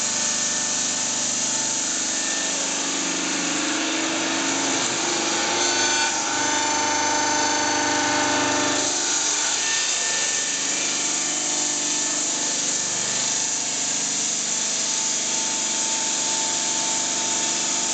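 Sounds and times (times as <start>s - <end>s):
stone saw grinding: 0.0s - 17.9s.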